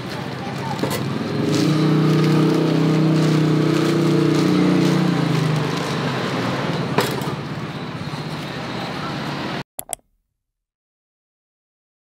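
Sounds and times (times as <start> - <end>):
street background noise: 0.0 - 9.6.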